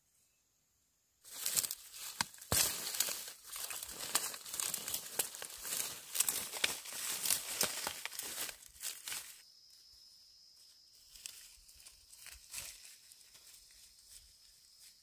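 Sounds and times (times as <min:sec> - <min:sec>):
stalk snapping: 0:01.3 - 0:09.3
corn stalks rustling: 0:01.3 - 0:09.4, 0:11.0 - 0:15.0.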